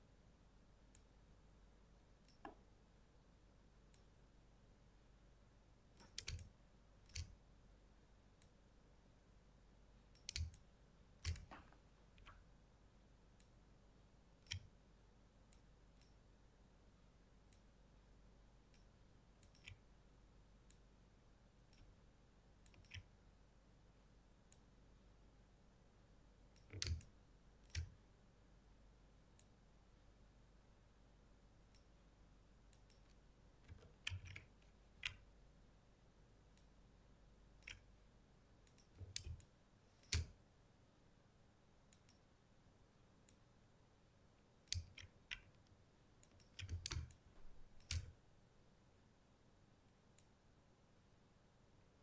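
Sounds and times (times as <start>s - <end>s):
computer mouse clicking: 2.2s - 2.6s, 6.0s - 7.4s, 10.1s - 12.4s, 14.4s - 14.8s, 18.7s - 19.9s, 22.6s - 23.1s, 26.5s - 28.0s, 32.7s - 35.3s, 37.6s - 37.9s, 38.6s - 40.4s, 41.9s - 42.2s, 44.6s - 48.2s.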